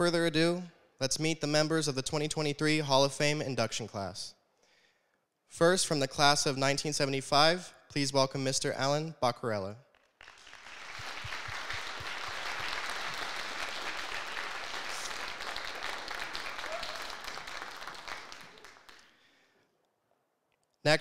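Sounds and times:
audience applauding: 10.2 - 19.2.

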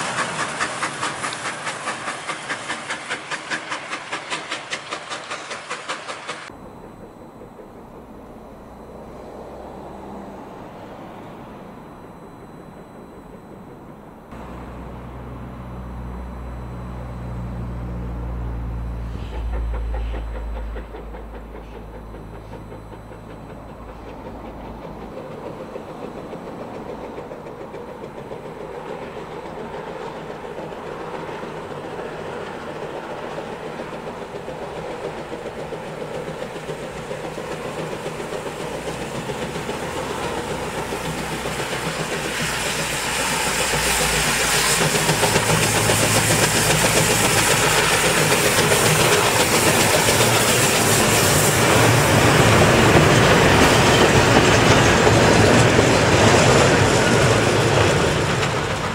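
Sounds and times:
steam hissing: 0.0 - 11.8, 13.8 - 58.9
steam train rolling past: 0.0 - 58.9.

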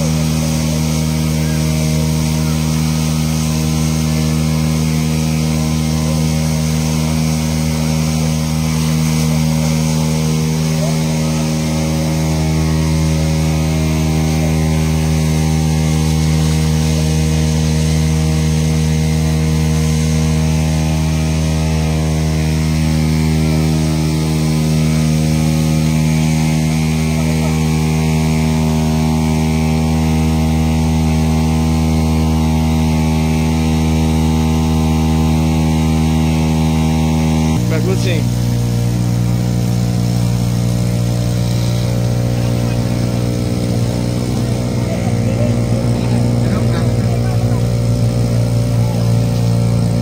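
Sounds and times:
pump engine running: 0.0 - 50.0
water spraying from hoses: 0.0 - 50.0.

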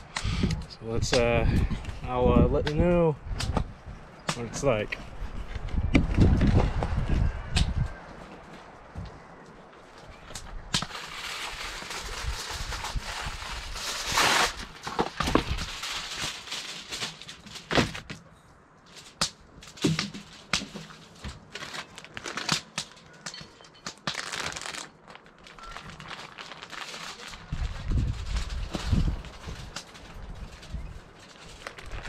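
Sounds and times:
plastic bags and foil crinkling: 10.1 - 18.1, 18.9 - 32.0.

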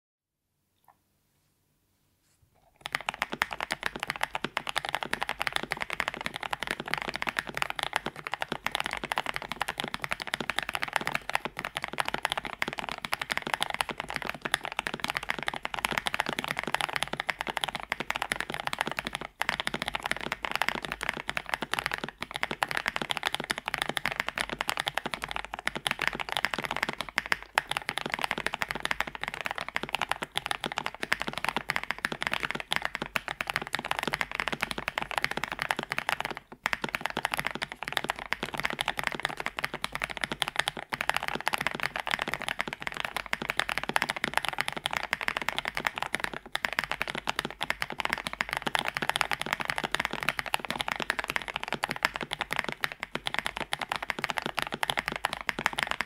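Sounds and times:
mechanical keyboard typing: 2.8 - 56.0.

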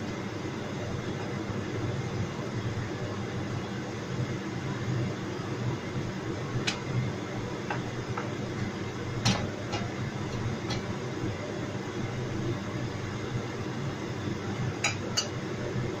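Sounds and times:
gas burner rumbling: 0.0 - 16.0.

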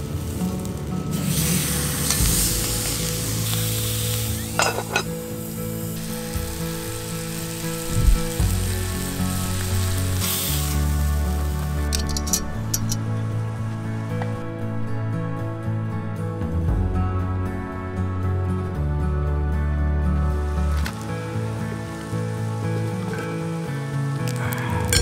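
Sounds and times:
steak sizzling in a skillet: 0.0 - 13.0, 20.7 - 25.0
soft background music: 0.0 - 25.0.

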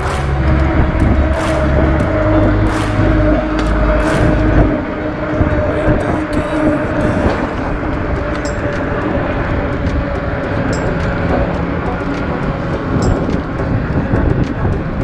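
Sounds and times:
bike road noise: 0.0 - 15.0
rushing wind: 0.0 - 15.0.

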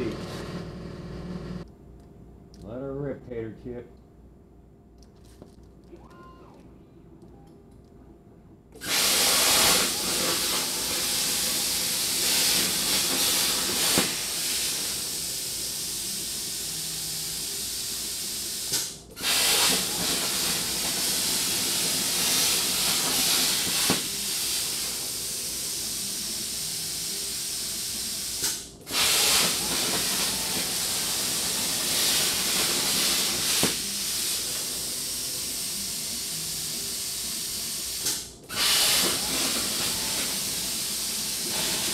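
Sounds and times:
plasma cutter hissing: 8.8 - 41.9.

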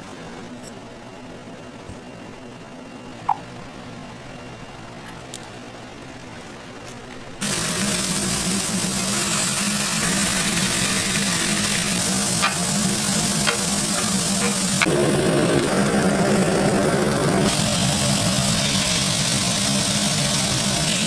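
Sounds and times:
patties sizzling on griddle: 7.4 - 21.0.

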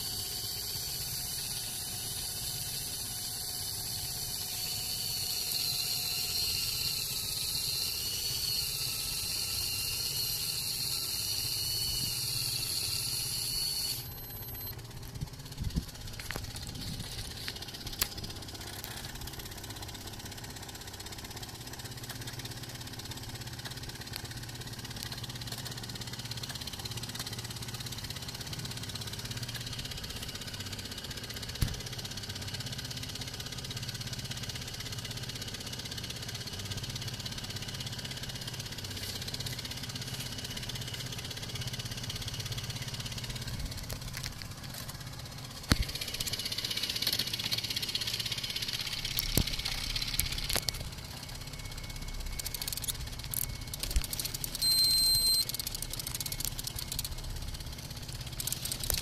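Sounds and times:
boat engine idling: 0.0 - 59.0
sharp click: 52.4 - 57.2.

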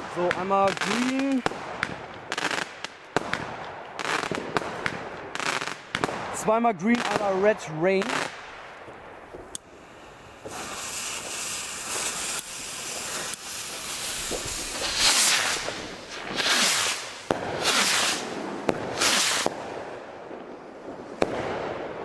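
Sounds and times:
firework bursts cracking: 0.0 - 22.0
fuses hissing: 9.6 - 18.4
skyrocket launch hisses: 9.7 - 18.4, 19.0 - 19.5.

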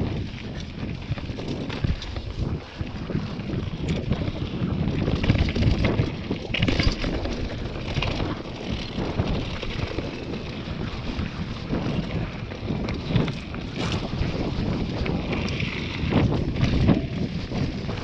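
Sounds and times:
bike rattling over bumps: 0.0 - 18.0
wind buffeting microphone: 0.0 - 18.0
tyres crunching on gravel: 13.0 - 18.0.

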